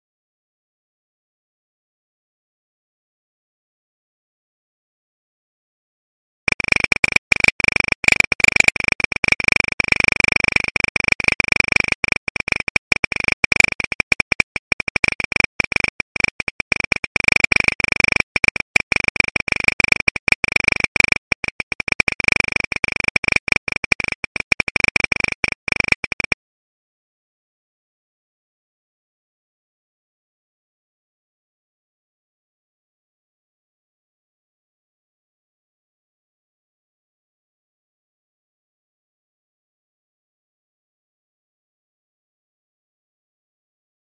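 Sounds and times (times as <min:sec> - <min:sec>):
electronic crackling clicks: 0:06.5 - 0:10.0, 0:10.6 - 0:26.4.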